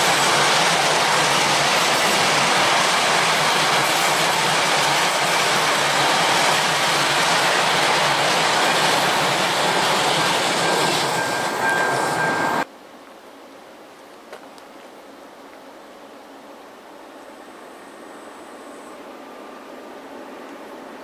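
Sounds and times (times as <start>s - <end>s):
freight wheels rumbling on rail: 0.0s - 12.7s.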